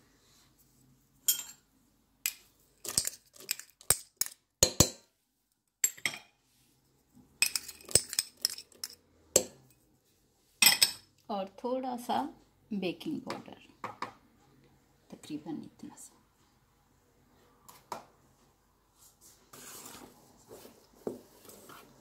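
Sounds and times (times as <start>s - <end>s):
spoon clinking on metal bowl: 1.3s - 1.6s, 7.4s - 9.6s.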